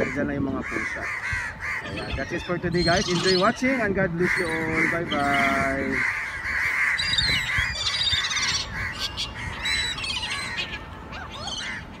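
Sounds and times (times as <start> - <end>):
gulls calling: 0.0 - 12.0.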